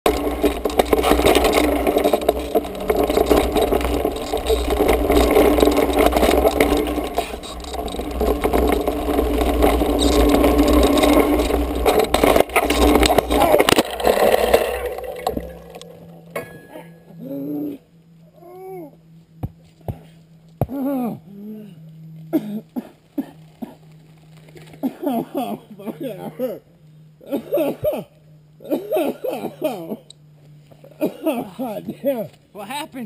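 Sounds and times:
tyres scraping over dirt: 0:00.0 - 0:17.1
mountain bike clattering: 0:00.0 - 0:17.2
bike crashing into a tree: 0:00.1 - 0:16.9.

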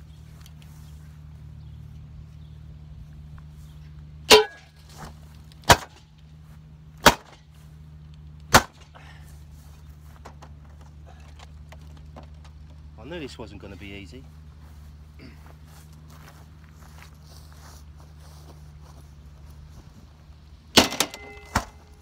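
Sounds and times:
metal spade striking television set: 0:04.3 - 0:04.7, 0:20.8 - 0:21.8.

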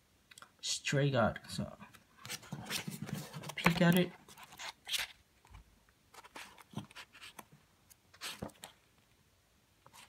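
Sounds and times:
pages turning: 0:02.2 - 0:08.8.

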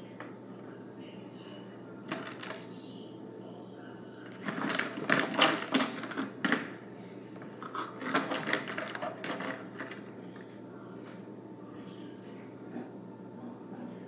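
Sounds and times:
scraping rustling and clicking: 0:04.3 - 0:11.2.

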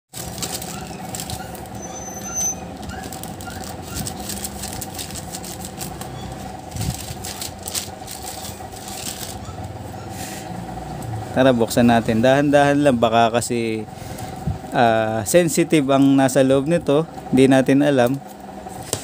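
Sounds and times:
plastic pouch crinkling: 0:00.1 - 0:01.8, 0:02.8 - 0:09.4
steady background hum: 0:00.2 - 0:19.0.

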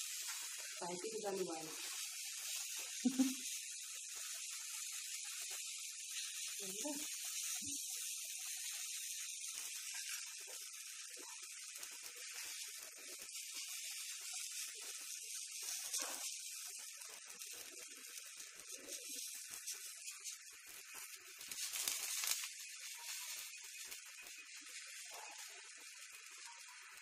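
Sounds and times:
batter sizzling on a hot pan: 0:00.0 - 0:27.0.

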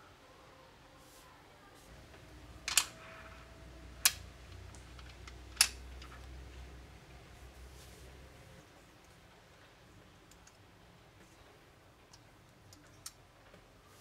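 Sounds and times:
magnetic balls snapping together: 0:02.6 - 0:03.0, 0:04.0 - 0:06.2.

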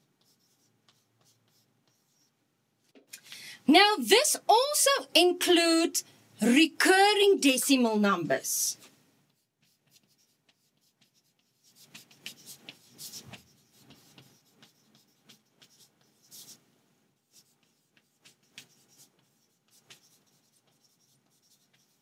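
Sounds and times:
chalk scratching on chalkboard: 0:00.0 - 0:02.4, 0:09.3 - 0:16.6, 0:17.2 - 0:22.0.

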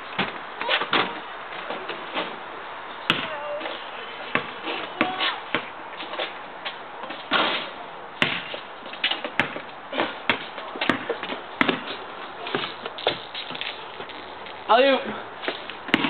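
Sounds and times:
basketball bouncing on asphalt: 0:00.2 - 0:01.2, 0:03.0 - 0:06.3, 0:08.2 - 0:14.3, 0:15.4 - 0:16.0.

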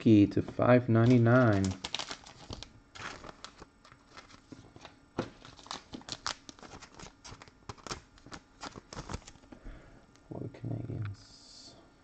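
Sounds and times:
plastic packaging crinkling: 0:00.9 - 0:09.5.

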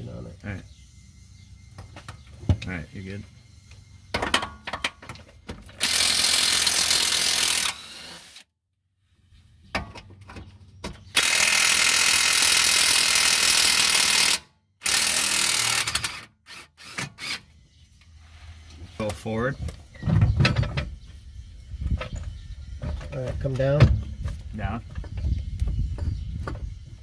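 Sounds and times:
cordless power tool spinning: 0:05.8 - 0:08.5, 0:11.2 - 0:17.4.

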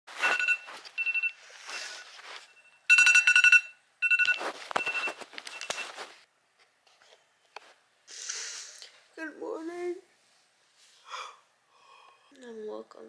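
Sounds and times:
rustling: 0:00.1 - 0:02.6, 0:04.1 - 0:06.3
electronic alarm beeping: 0:00.2 - 0:06.0.

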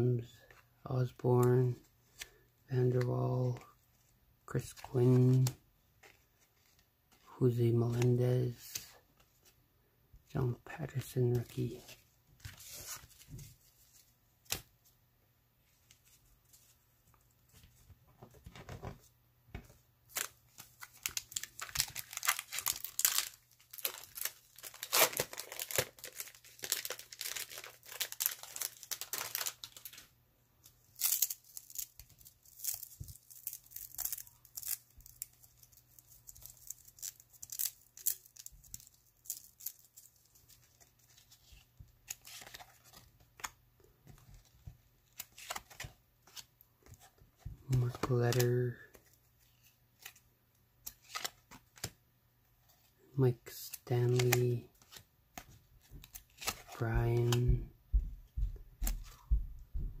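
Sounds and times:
cards being handled: 0:02.0 - 0:09.5, 0:10.8 - 0:14.7, 0:15.6 - 0:52.0, 0:53.5 - 0:57.6
wrapper tearing and crinkling: 0:20.1 - 0:30.0, 0:30.9 - 0:40.3.

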